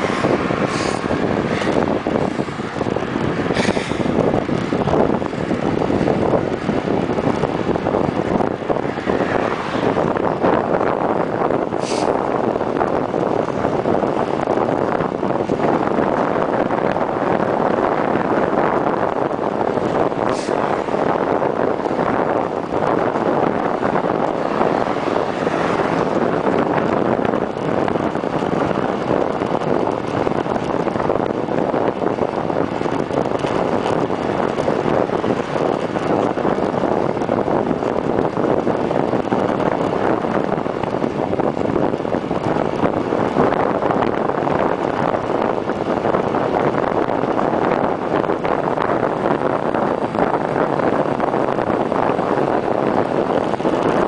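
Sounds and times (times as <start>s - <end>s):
wind buffeting microphone: 0.0s - 54.0s.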